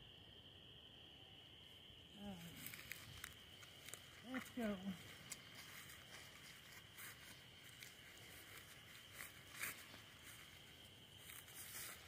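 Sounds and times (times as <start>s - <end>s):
footsteps on grass: 2.5s - 12.0s.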